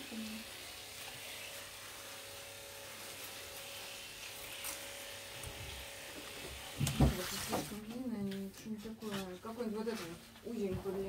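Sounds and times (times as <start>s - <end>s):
small electric motor humming: 0.0s - 6.9s.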